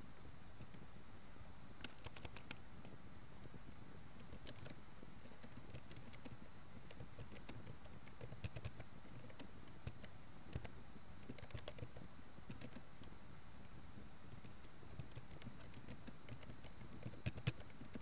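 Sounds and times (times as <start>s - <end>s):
low background hiss: 0.0s - 18.0s
keyboard keys clicking: 1.8s - 2.6s, 5.4s - 12.8s, 14.4s - 18.0s.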